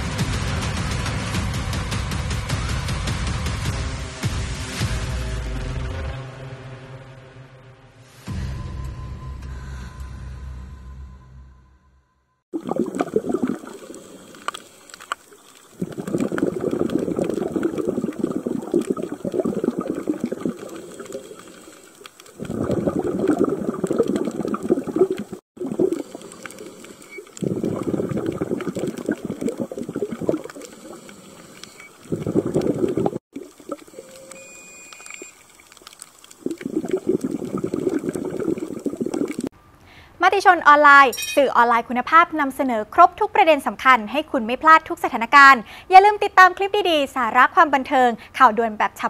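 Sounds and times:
waves washing against shore: 12.6 - 34.3.

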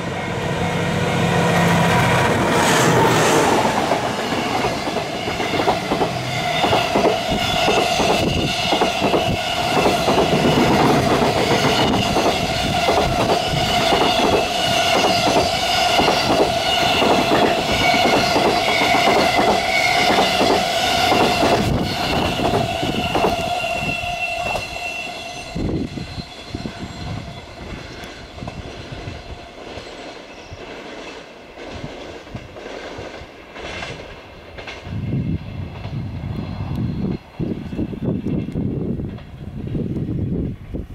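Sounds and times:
train wheels clattering over rail joints: 3.5 - 23.5
high ringing tone: 21.9 - 28.0.

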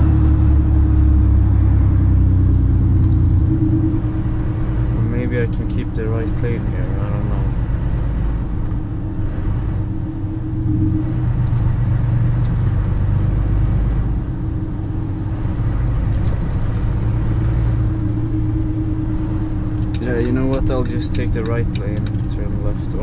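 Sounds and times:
faint high whine: 0.0 - 23.0
truck diesel engine drone: 0.0 - 23.0.

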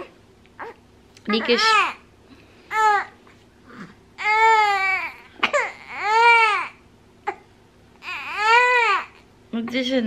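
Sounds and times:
baby crying: 1.4 - 2.0, 2.7 - 3.2, 4.2 - 9.3.

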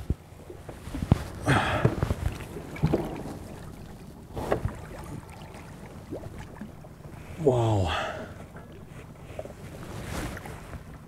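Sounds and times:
water splashing: 0.9 - 7.1.

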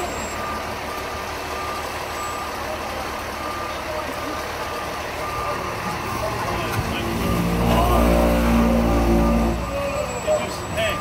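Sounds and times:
reversing alarm beeping: 0.0 - 11.0
truck engine rumbling: 0.0 - 11.0.

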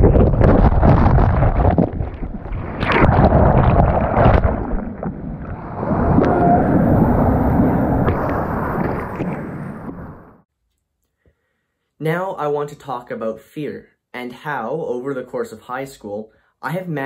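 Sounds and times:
sharp splashes: 0.0 - 10.4
wind noise on microphone: 0.0 - 10.4.

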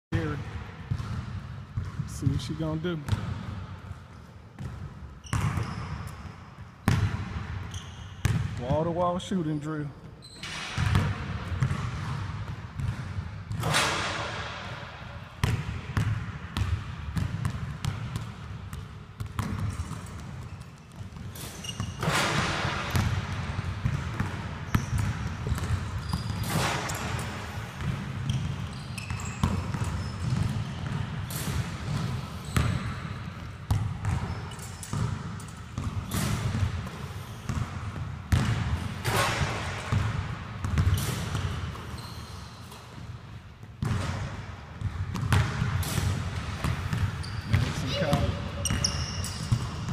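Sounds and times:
basketball bouncing on hardwood floor: 0.9 - 2.1, 6.8 - 7.6, 8.2 - 8.6, 10.5 - 14.6, 15.4 - 27.1, 27.8 - 31.2, 32.6 - 34.3, 34.9 - 41.5, 43.8 - 49.9.

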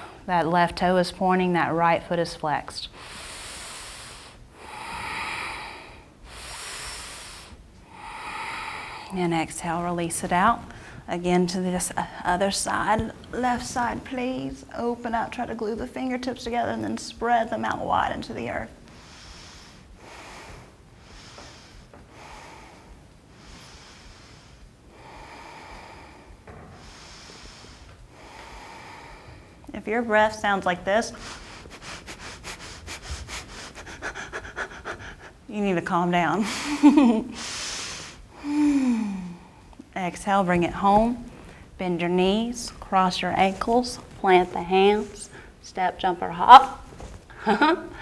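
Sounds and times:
woman breathing deeply: 2.9 - 9.3, 10.6 - 11.1, 18.8 - 29.7, 31.1 - 35.5, 36.4 - 39.8, 40.8 - 41.8, 44.9 - 45.6.

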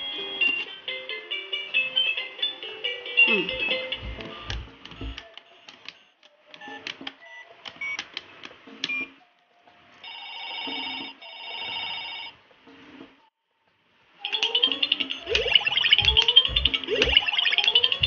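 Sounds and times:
toy telephone ring: 10.0 - 12.3.

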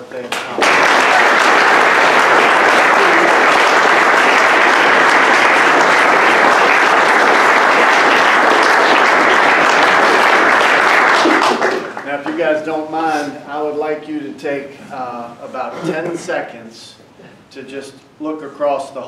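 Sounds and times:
people applauding: 0.0 - 12.6.

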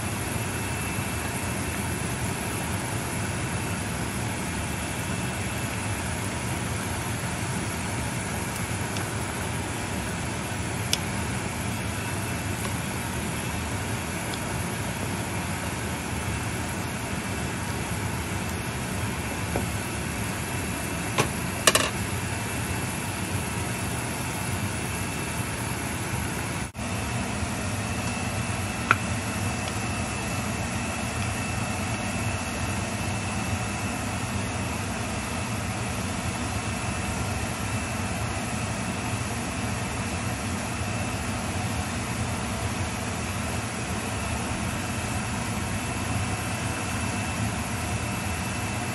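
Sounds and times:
gas stove rushing: 0.0 - 24.4
soup boiling: 0.1 - 24.8.

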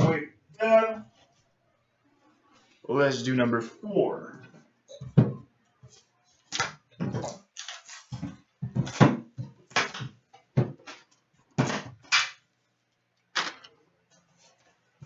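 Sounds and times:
shrink wrap crinkling and tearing: 7.5 - 8.1.

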